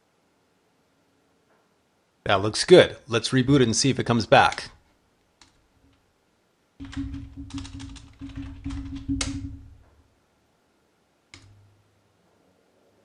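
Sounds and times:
computer keyboard typing: 0:06.8 - 0:09.8.

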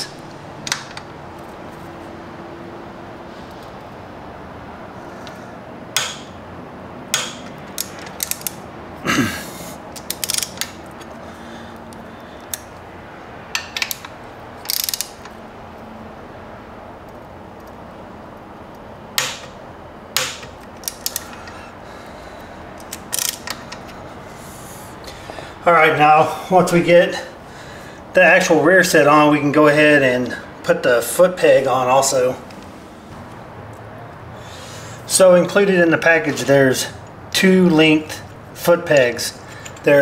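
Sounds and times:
torque wrench clicking: 0:06.0 - 0:06.3, 0:07.1 - 0:08.6, 0:09.9 - 0:11.1, 0:13.5 - 0:15.4, 0:20.2 - 0:21.6, 0:22.8 - 0:24.0.

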